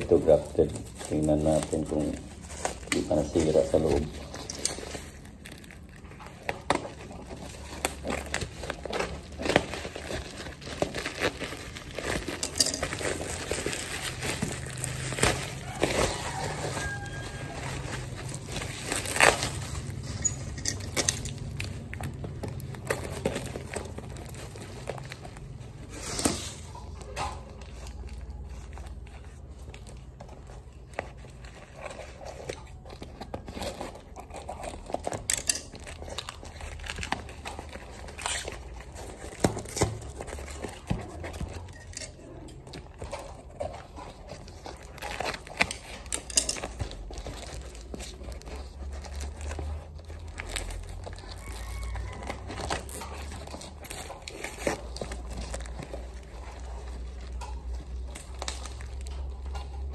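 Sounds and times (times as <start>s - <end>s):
bubble wrap crackles: 0.0s - 59.9s
bubble wrap crinkling: 0.0s - 59.9s
scissors cutting packaging: 0.0s - 59.9s.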